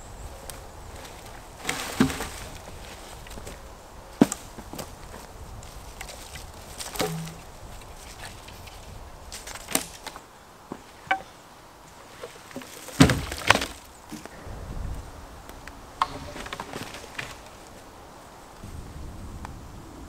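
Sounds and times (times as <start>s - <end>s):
logs knocking together: 1.0s - 3.6s, 4.2s - 11.3s, 12.0s - 14.4s, 16.0s - 17.7s
loud thuds of logs: 1.0s - 3.6s, 4.2s - 5.2s, 6.0s - 8.7s, 9.3s - 11.3s, 12.2s - 14.4s, 16.0s - 17.6s.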